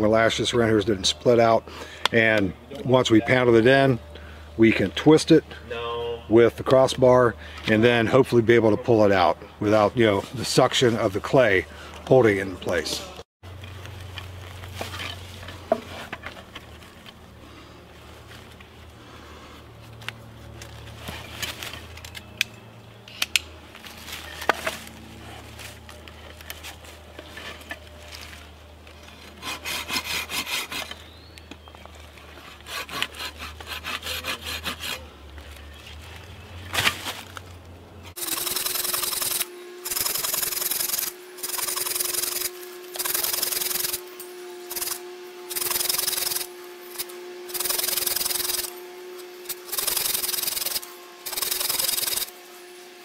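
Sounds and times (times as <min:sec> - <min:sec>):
hand saw cutting wood: 0:29.1 - 0:31.0, 0:32.3 - 0:35.1, 0:38.2 - 0:44.0, 0:44.7 - 0:48.8, 0:49.4 - 0:52.3.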